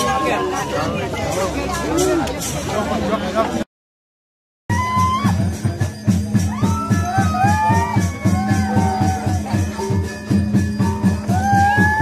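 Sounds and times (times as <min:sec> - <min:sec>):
gamelan cymbals and drums: 0:00.0 - 0:03.2, 0:04.7 - 0:12.0.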